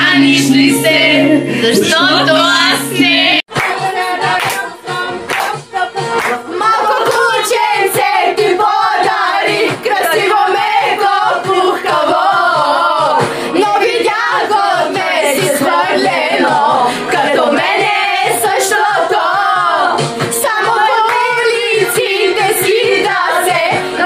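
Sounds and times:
women singing together: 0.0s - 24.0s.

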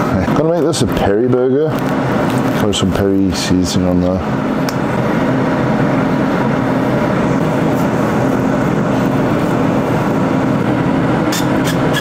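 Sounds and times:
appliance fan rushing: 0.0s - 12.0s.

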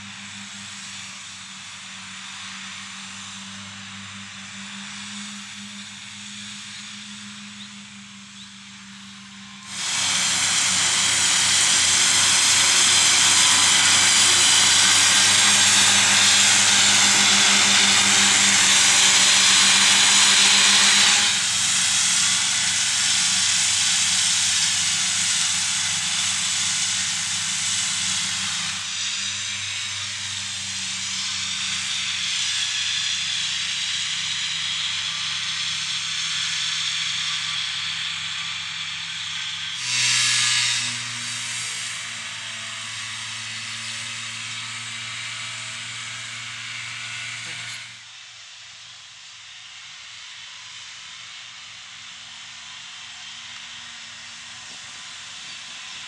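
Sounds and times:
mower discs hissing: 8.8s - 36.9s, 47.4s - 48.0s.

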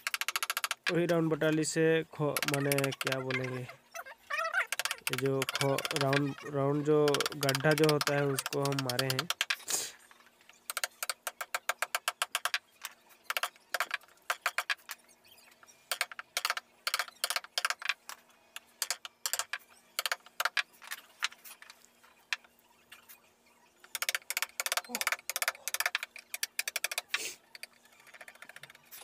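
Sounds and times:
hammer tapping gouge handle: 2.3s - 3.5s, 4.7s - 9.6s, 23.9s - 28.7s.

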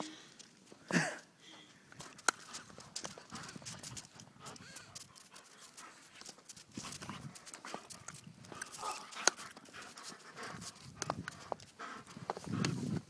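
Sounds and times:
paws scampering in snow: 2.0s - 13.0s.

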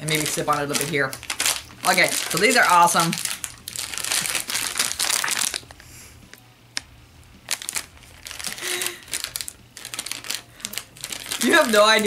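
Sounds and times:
plastic packaging crinkling: 0.0s - 5.8s, 7.4s - 12.0s.

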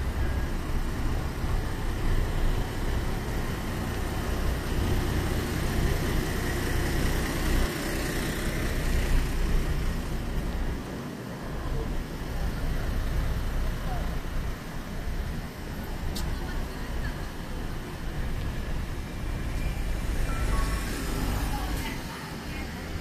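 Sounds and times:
bus engine passing: 0.0s - 23.0s
cars moving on road: 0.0s - 23.0s.

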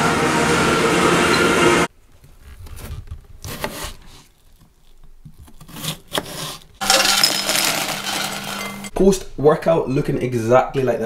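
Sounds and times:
handling noises: 6.6s - 8.9s.

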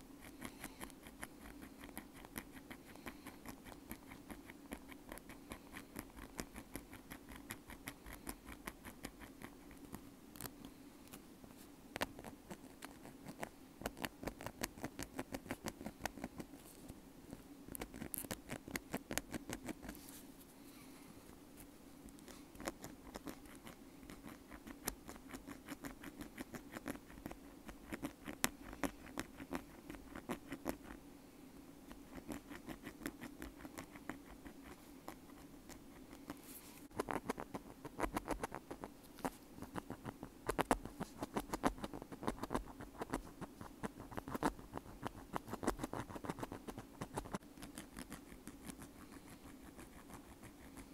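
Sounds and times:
ear pick scratching: 31.9s - 50.9s.

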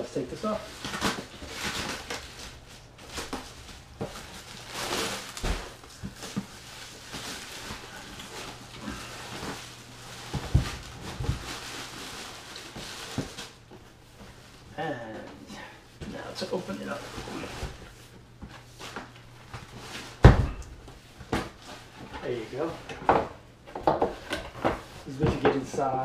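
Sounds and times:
plastic bag rustling: 0.0s - 14.7s.

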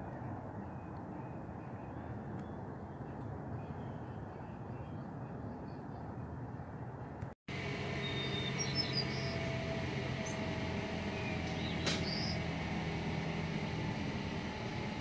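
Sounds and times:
distant jet rumble overhead: 0.0s - 15.0s
bird chirps: 8.0s - 9.5s, 11.1s - 12.4s.

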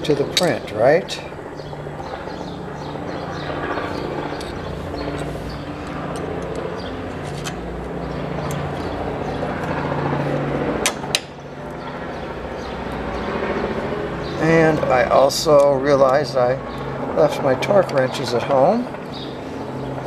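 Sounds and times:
low mechanical hum: 0.0s - 20.0s
sharp metal clicks: 0.3s - 0.6s.

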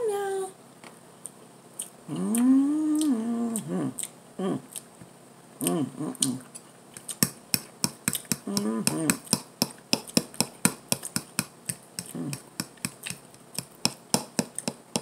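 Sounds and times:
woman humming with food: 2.1s - 4.8s, 5.6s - 6.5s, 8.4s - 9.3s, 12.0s - 12.5s.

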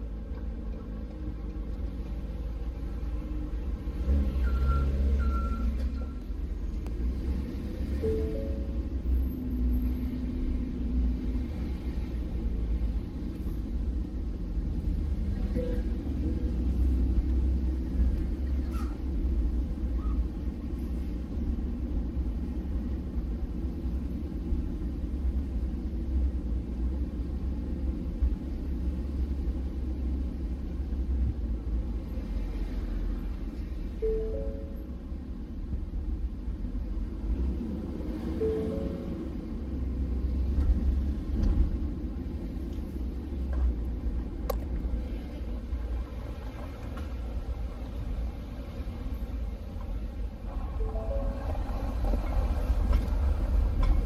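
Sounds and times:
truck driving low rumble: 0.0s - 54.0s.

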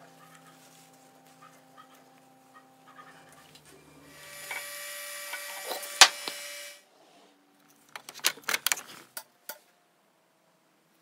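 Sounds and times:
faint hum: 0.0s - 7.6s.

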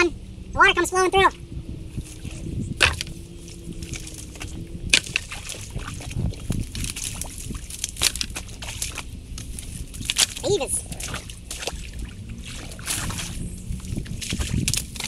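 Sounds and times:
creek water sloshing: 0.0s - 15.0s
sticks cracking and knocking: 2.8s - 11.9s, 12.8s - 15.0s.

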